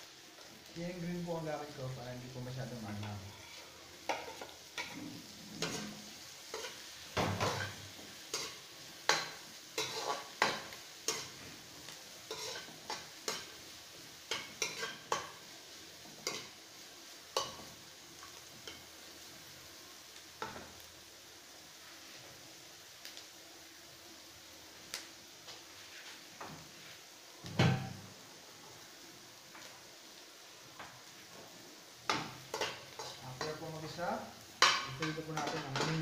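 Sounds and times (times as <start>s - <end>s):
onions sizzling in oil: 0.0s - 36.0s
metal spoon scraping a wok: 3.0s - 6.8s, 7.4s - 11.4s, 12.3s - 13.5s, 14.3s - 15.2s, 32.5s - 33.9s.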